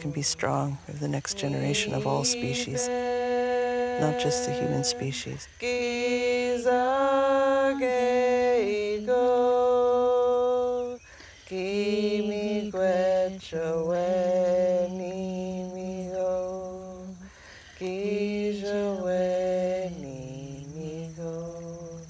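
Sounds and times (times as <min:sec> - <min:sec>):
person singing prayer song: 0:00.0 - 0:22.0.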